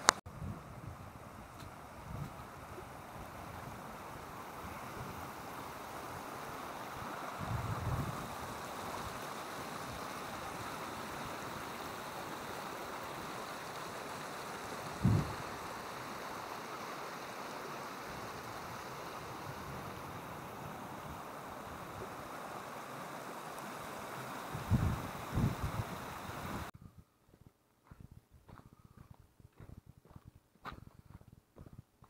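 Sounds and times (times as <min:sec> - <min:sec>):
running water: 0:01.3 - 0:26.7.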